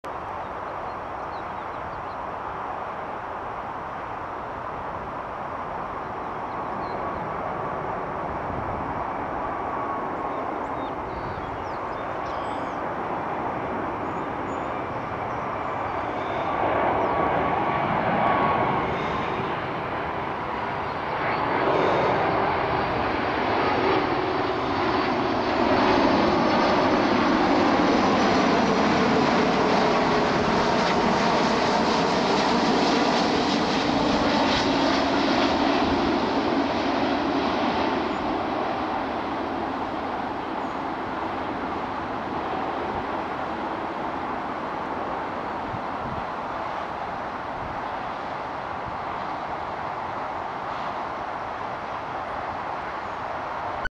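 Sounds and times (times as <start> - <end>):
faint jet whine: 0.1 - 53.9
jet engines rumbling: 0.1 - 53.9.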